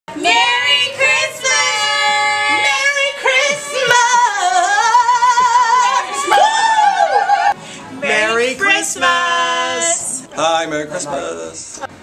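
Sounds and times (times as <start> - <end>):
women singing high notes: 0.1 - 7.6.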